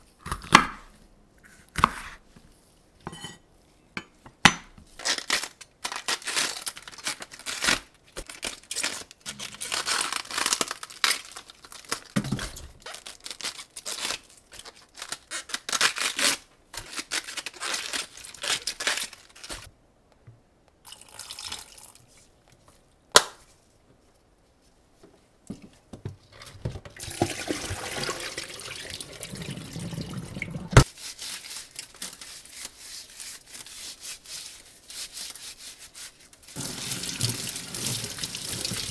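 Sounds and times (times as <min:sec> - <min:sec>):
cabbage leaves tearing: 0:05.0 - 0:12.2, 0:12.8 - 0:19.7, 0:30.8 - 0:38.9
tap running into sink: 0:36.6 - 0:38.9.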